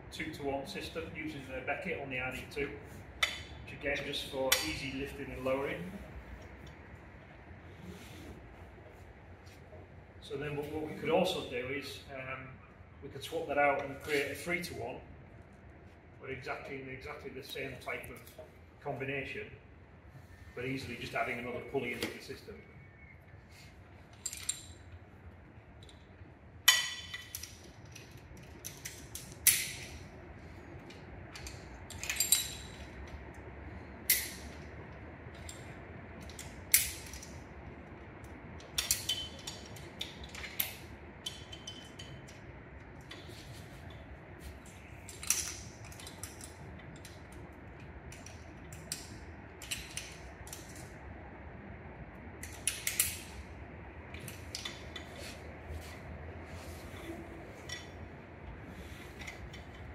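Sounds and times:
metal carabiners clinking: 24.1 - 24.9, 31.3 - 33.0, 38.6 - 42.4, 45.0 - 47.2.

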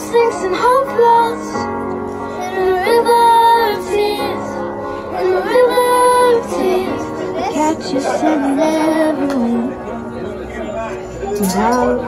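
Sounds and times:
girl singing: 0.0 - 1.6, 2.4 - 9.7
pop backing track: 0.0 - 12.0.

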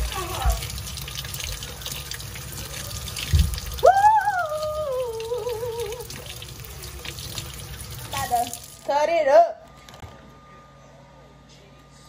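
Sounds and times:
faucet running into sink: 0.0 - 8.9.

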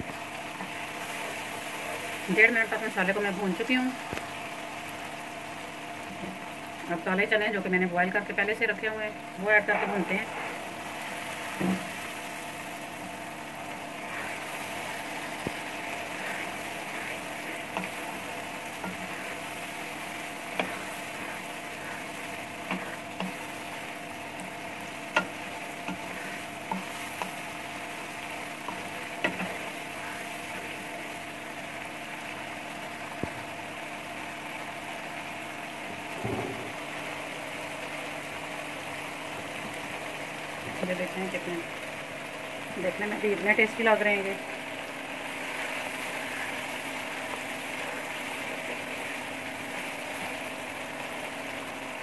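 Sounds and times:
chickpeas sizzling in oil: 0.0 - 52.0
spoon stirring and scraping: 14.0 - 30.7.

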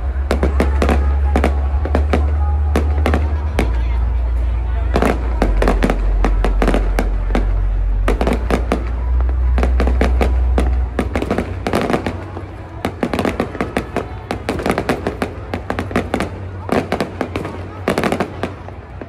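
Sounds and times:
fireworks popping and crackling: 0.0 - 4.0, 4.9 - 19.0
deep low rumble: 0.0 - 13.8.

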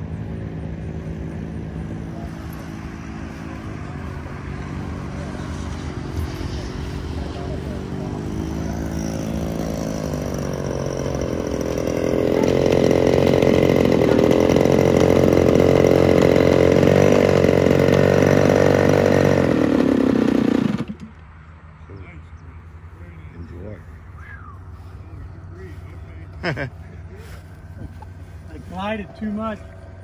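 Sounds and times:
model airplane engine revving: 0.1 - 21.2.

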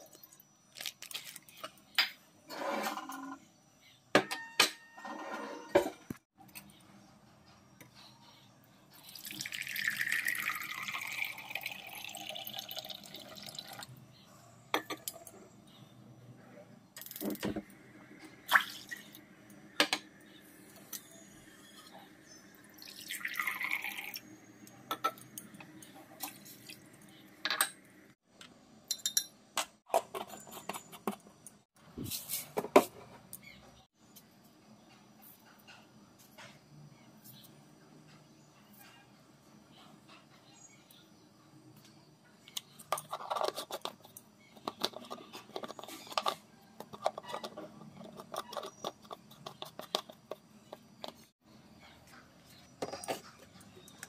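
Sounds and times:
liquid pouring into vessel: 9.0 - 13.8, 22.8 - 24.2.

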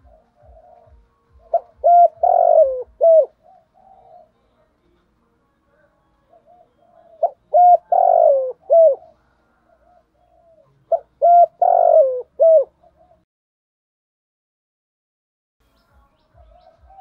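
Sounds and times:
soft dove coos: 0.0 - 4.6, 6.2 - 13.2, 16.5 - 17.0
dove cooing song: 0.0 - 4.7, 6.2 - 13.2, 16.4 - 17.0.

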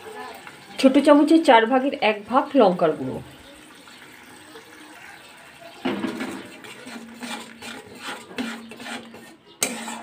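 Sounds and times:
paste frying in oil: 0.0 - 10.0
metal spatula scraping metal pan: 5.9 - 10.0.

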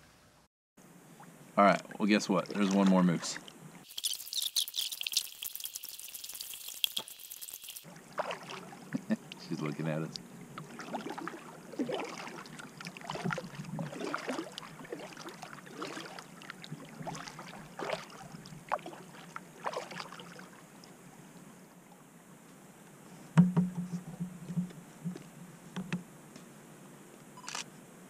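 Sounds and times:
paddle dipping into water: 1.2 - 3.9, 7.9 - 21.0
water drips and splashes: 1.2 - 21.0
paddle knocking against hull: 23.4 - 26.0.

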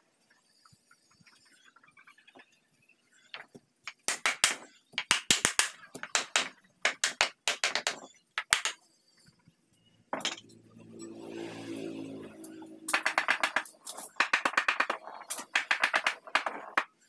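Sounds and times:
hammer knocking on wooden block: 3.9 - 8.8, 12.9 - 16.9.

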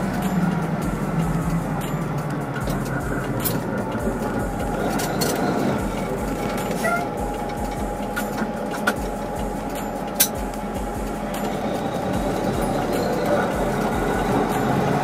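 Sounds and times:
road noise inside cab: 0.0 - 15.0
truck engine rumble: 0.0 - 15.0.

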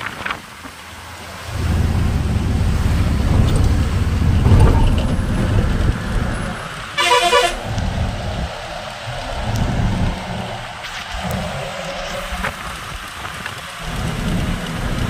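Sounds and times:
truck engine and road rumble: 0.0 - 15.0
warbling horn blast: 7.0 - 7.8.

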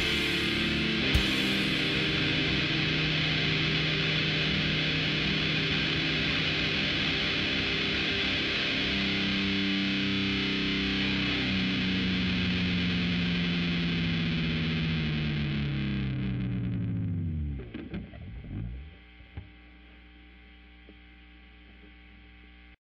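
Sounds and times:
distorted electric guitar chord: 0.0 - 19.4
amplifier hum and hiss: 0.0 - 22.8
guitar string and pick clicks: 17.4 - 19.5.

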